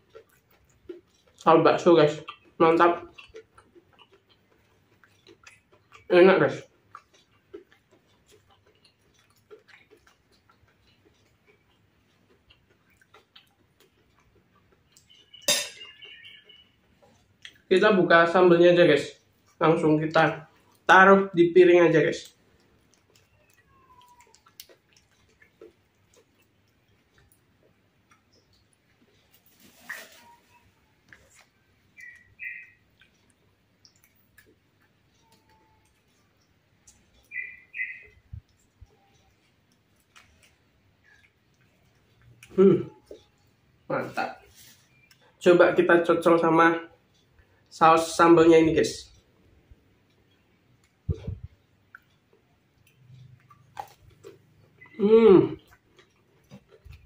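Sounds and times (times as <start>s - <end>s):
chewing crispy food: 0.0s - 48.2s, 49.1s - 57.0s
spoon on a plate: 15.4s - 16.0s.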